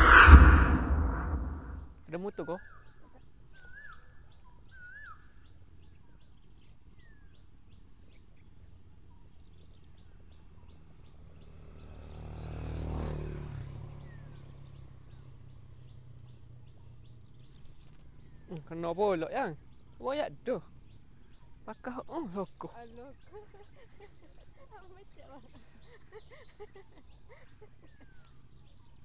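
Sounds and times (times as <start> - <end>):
passing motor: 0.0 - 1.8
birds chirping: 15.1 - 29.0.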